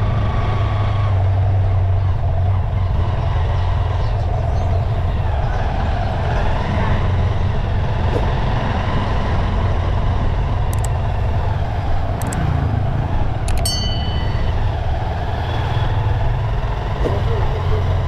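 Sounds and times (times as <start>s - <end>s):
wind and road noise: 0.0s - 18.0s
mouse click sound effects: 13.5s - 13.7s
short bell ding: 13.6s - 14.6s.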